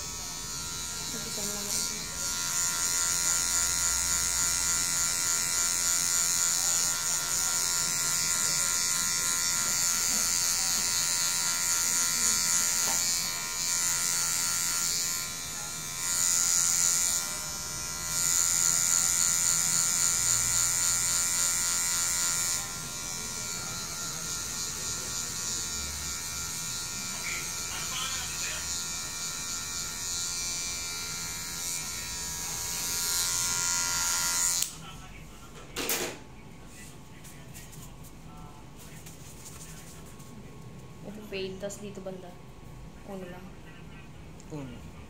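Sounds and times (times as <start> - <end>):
electric hair clipper buzzing: 0.0 - 34.8.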